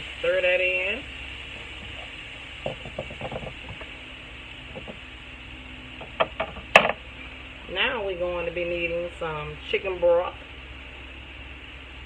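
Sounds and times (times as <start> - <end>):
knock: 2.6 - 3.8.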